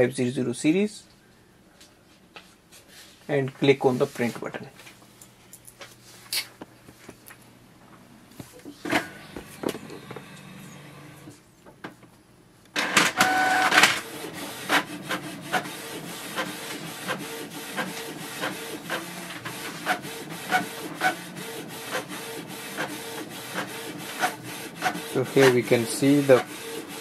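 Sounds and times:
printer mechanical hum: 8.4 - 11.4, 12.7 - 27.0
printer motors whirring: 8.8 - 11.3, 12.7 - 27.0.

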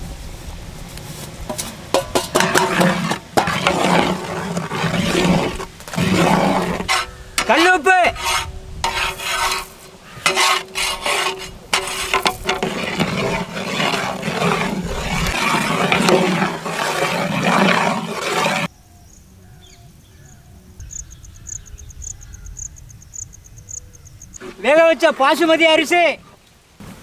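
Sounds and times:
metal ladle scraping pot: 1.5 - 18.7
insects chirping: 18.7 - 24.5.

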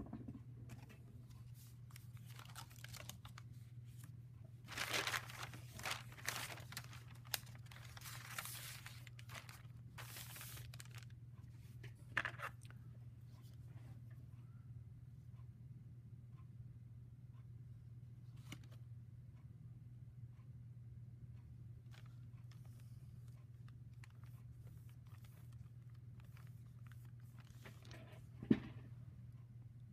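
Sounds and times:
paper rustling and crinkling: 0.7 - 11.2, 21.9 - 28.3.

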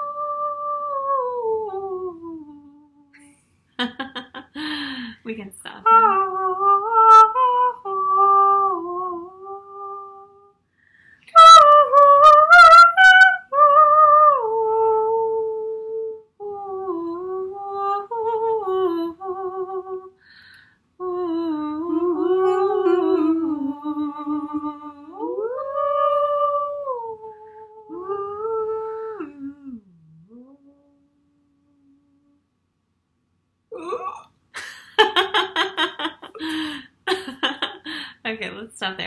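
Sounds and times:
women singing wordless melodies: 0.0 - 3.3, 5.8 - 10.5, 11.3 - 20.2, 21.0 - 31.0.

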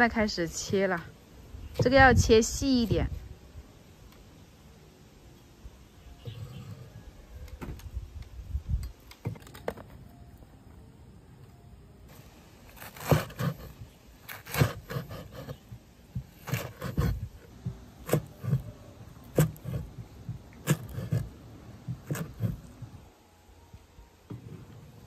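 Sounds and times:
knife chopping on cutting board: 18.0 - 18.7, 19.3 - 19.9, 20.6 - 21.3, 21.9 - 22.6.

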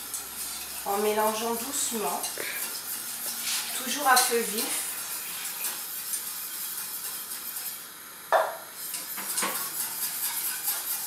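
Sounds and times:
sauce hissing over gas flame: 0.0 - 11.0
utensil knocking against pan: 8.3 - 8.6.

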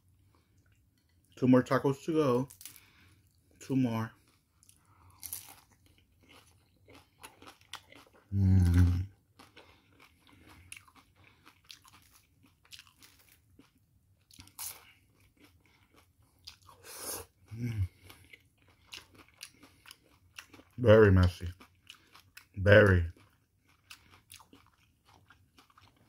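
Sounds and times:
crunching and chewing fried food: 0.1 - 26.0
low vocal sound from eater: 8.3 - 9.1, 16.8 - 18.0.

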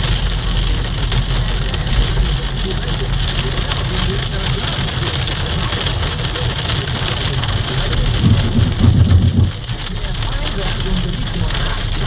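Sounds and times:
engine and tyre rumble: 0.0 - 12.0
wet snow hitting car windshield: 3.5 - 12.0
loud low rumble: 7.3 - 12.0.

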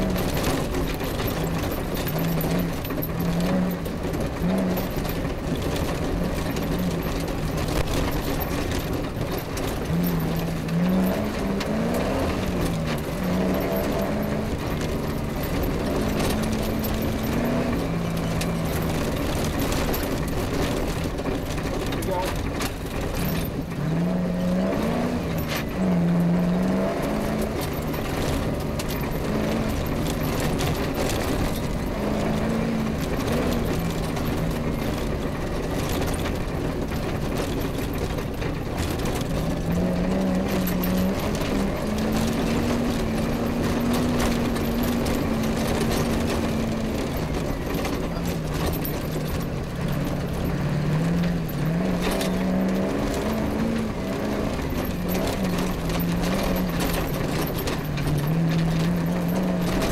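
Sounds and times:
knocks and rattles from rough ground: 0.0 - 59.9
rally car engine revving: 0.0 - 59.9.

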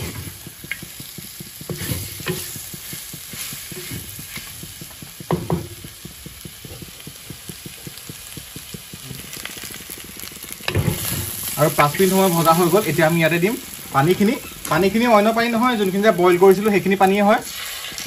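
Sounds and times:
spatula scraping a pan: 0.0 - 12.9
meat sizzling: 0.0 - 18.0.

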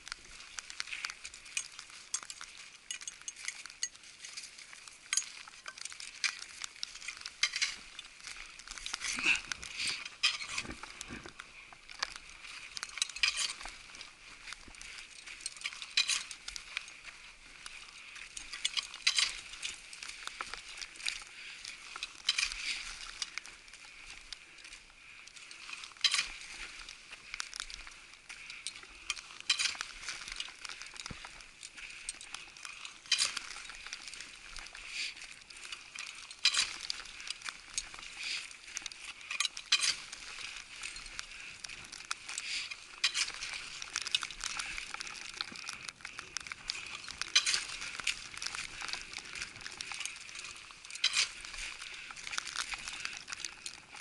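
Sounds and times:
snow crunching underfoot: 0.0 - 54.0.

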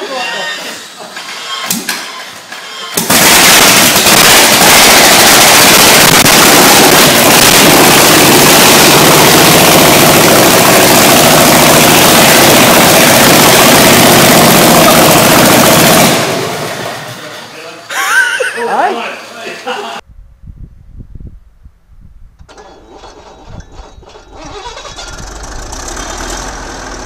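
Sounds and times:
engine running without exhaust: 5.4 - 16.9, 22.5 - 27.0.

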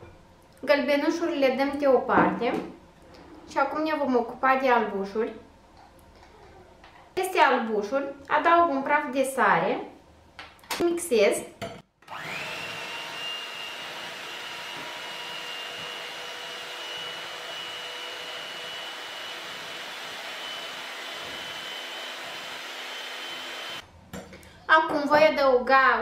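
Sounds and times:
electric hand mixer whirring: 12.0 - 23.8.

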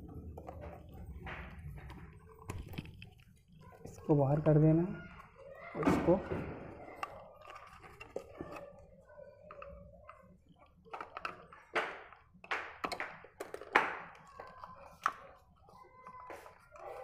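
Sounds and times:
plastic clicking and knocking: 0.0 - 4.0, 5.0 - 17.0.

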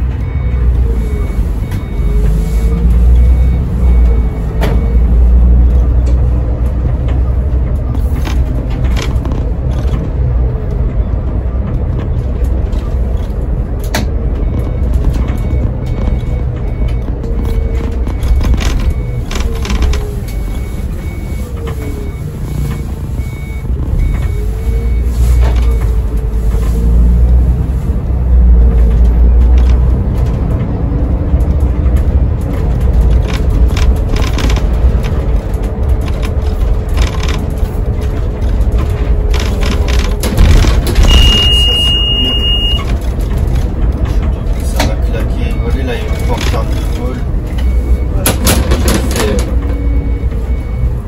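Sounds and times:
bus engine rumble: 0.0 - 51.0
faint repeated beep: 0.2 - 5.6, 14.4 - 25.9, 41.0 - 42.9, 49.1 - 51.0.

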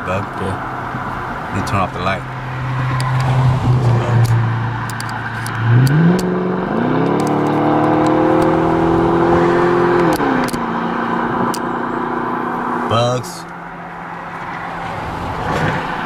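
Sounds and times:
car engine revving: 0.1 - 16.0
sharp clicks: 2.9 - 3.4, 4.2 - 6.3, 7.0 - 8.6, 10.0 - 10.6.

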